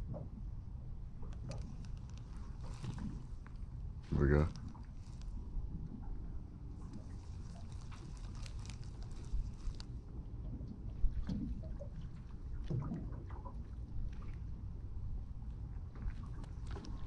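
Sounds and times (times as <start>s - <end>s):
water and wind rumble: 0.0s - 17.0s
light clicks and taps: 1.2s - 3.6s, 16.0s - 17.0s.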